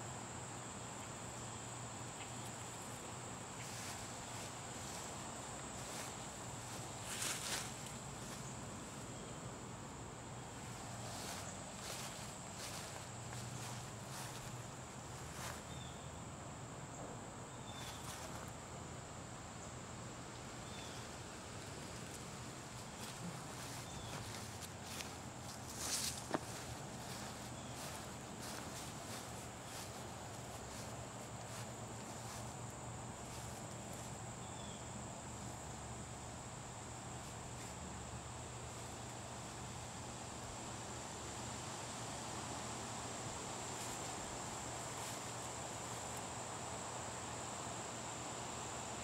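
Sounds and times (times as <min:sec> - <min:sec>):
high-pitched insect trill: 0:17.5 - 0:18.8, 0:22.0 - 0:49.0.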